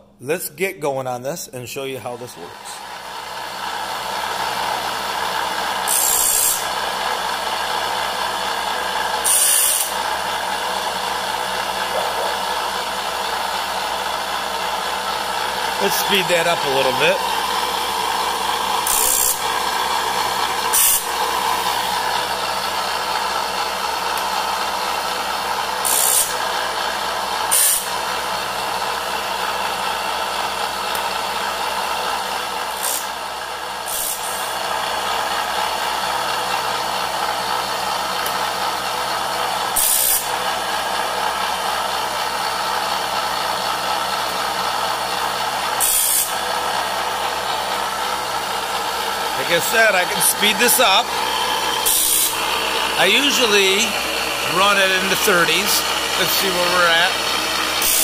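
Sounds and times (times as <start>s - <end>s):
grinding wheel running: 2.3s - 58.0s
grinding hissing bursts: 5.6s - 23.2s, 27.5s - 28.0s, 45.6s - 58.0s.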